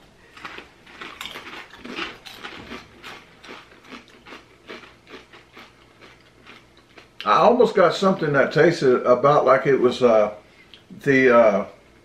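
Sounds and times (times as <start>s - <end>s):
potato chips crunching: 0.2s - 7.3s.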